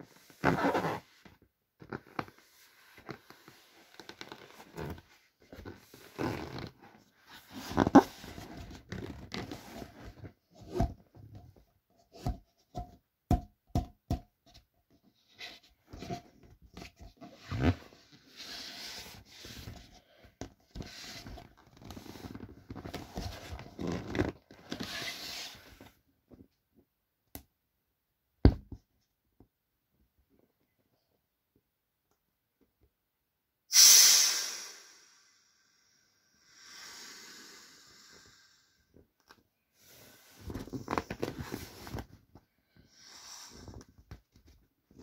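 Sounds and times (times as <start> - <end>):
vinyl rustling: 40.4 - 42.5.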